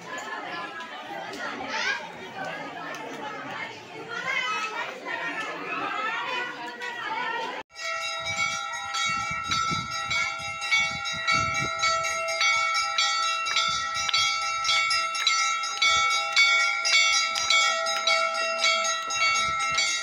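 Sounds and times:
brass bells ringing rapidly: 0:07.7 - 0:20.0.

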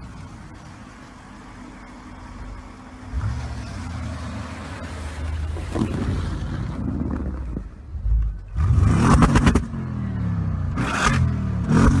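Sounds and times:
car engine revving: 0:02.2 - 0:12.0
exhaust crackles: 0:02.7 - 0:09.9.

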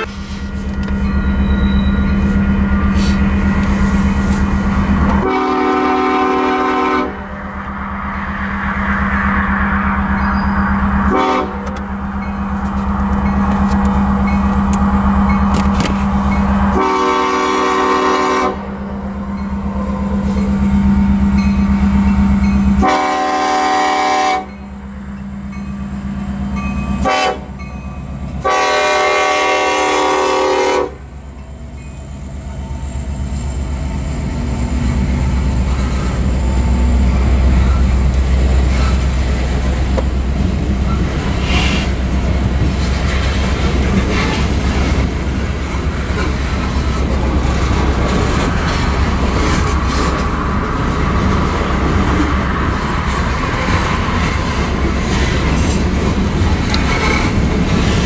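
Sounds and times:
crossing bell ringing: 0:00.0 - 0:05.0, 0:09.7 - 0:17.9, 0:18.8 - 0:23.3, 0:24.4 - 0:28.4
diesel locomotive rumble: 0:00.0 - 0:58.0
locomotive horn blasts: 0:05.2 - 0:07.4, 0:11.0 - 0:11.8, 0:16.6 - 0:18.7, 0:22.8 - 0:24.6, 0:27.0 - 0:27.6, 0:28.4 - 0:31.1.

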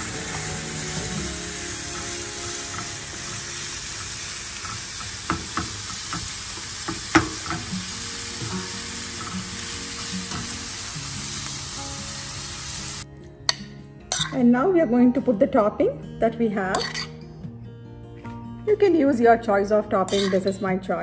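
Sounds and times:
vegetables sizzling in a pan: 0:00.0 - 0:13.1
spatula knocking against pan: 0:06.9 - 0:07.7.

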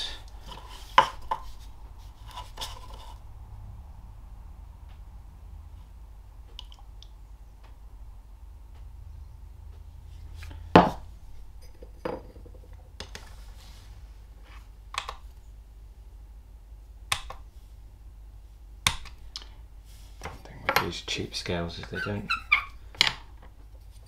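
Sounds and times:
objects knocking on tabletop: 0:11.8 - 0:12.7.

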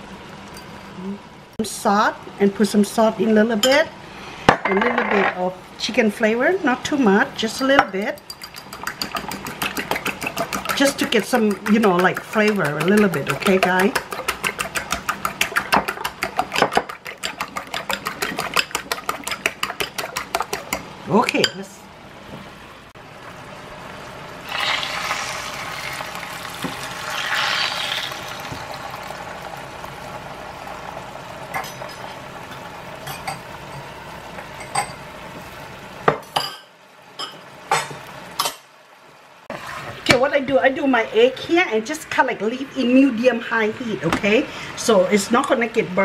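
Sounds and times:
bowl and utensils clinking on pans: 0:04.5 - 0:05.4
eggs frying hiss: 0:07.0 - 0:21.4, 0:22.9 - 0:36.3
fork clicking against bowl: 0:08.2 - 0:10.8
sauce bubbling: 0:08.2 - 0:21.0, 0:22.9 - 0:31.6.

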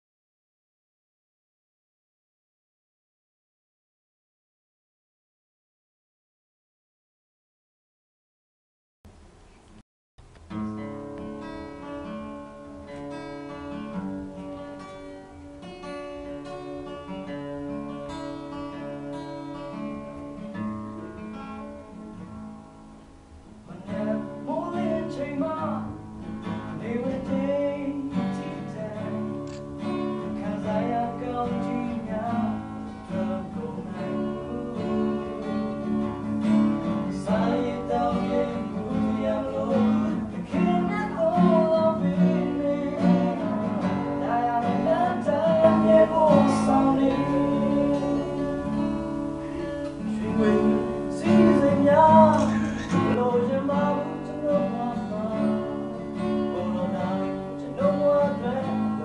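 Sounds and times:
acoustic guitar playing: 0:09.1 - 0:59.0
man singing: 0:23.6 - 0:59.0.

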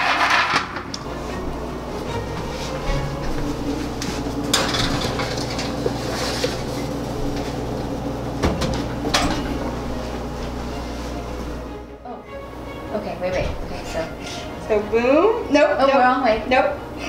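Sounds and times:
metallic clanks: 0:04.4 - 0:05.9.

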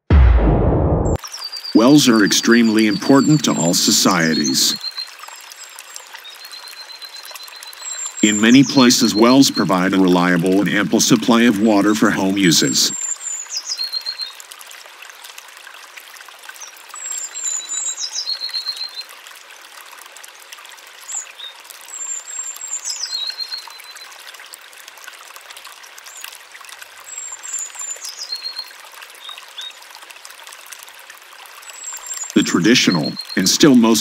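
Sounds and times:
water trickling: 0:01.2 - 0:34.0
songbird singing: 0:01.4 - 0:05.7, 0:06.3 - 0:14.3, 0:31.7 - 0:34.0.

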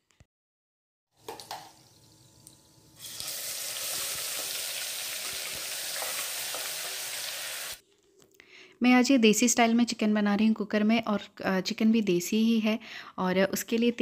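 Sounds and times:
onions frying in oil: 0:01.2 - 0:07.8.

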